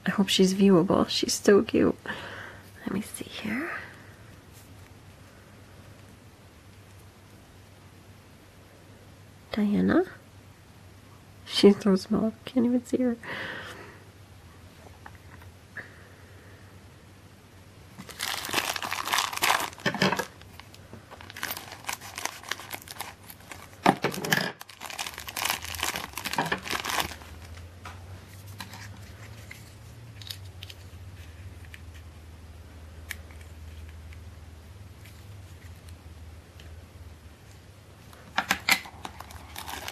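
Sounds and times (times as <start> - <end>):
plastic bag crinkling: 17.9 - 27.7, 38.7 - 39.9.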